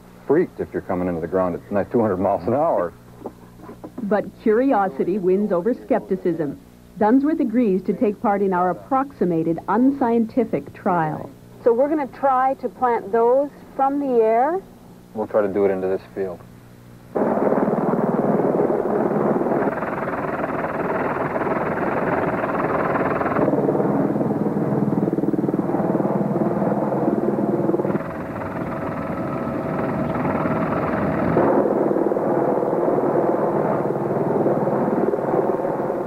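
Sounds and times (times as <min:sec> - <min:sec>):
helicopter engine and rotor: 0:17.2 - 0:31.5.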